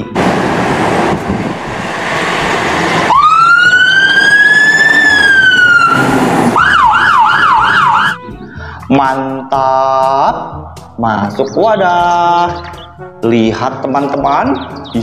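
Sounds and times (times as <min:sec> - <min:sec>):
loud rushing noise: 0:00.0 - 0:08.1
fire truck siren wailing: 0:00.0 - 0:08.3
siren fast yelp: 0:03.0 - 0:08.2.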